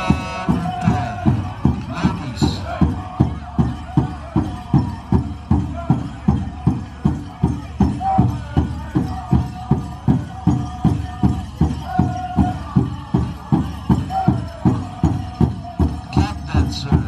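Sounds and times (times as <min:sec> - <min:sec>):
group singing long notes: 0:00.0 - 0:03.1
drum steady beat: 0:00.0 - 0:17.0.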